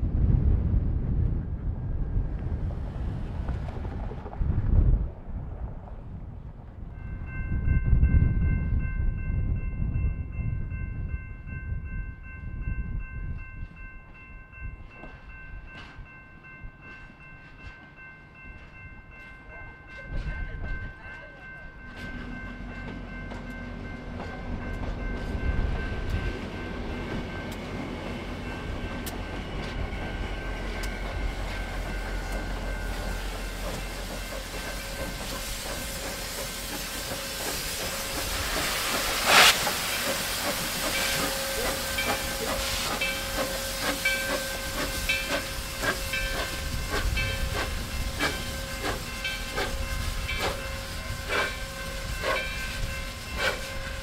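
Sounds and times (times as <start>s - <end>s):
steam train rolling by: 0.1s - 54.0s
steam locomotive chuffing: 21.4s - 54.0s
steam hissing: 30.2s - 54.0s
loud blast of steam: 35.3s - 44.0s.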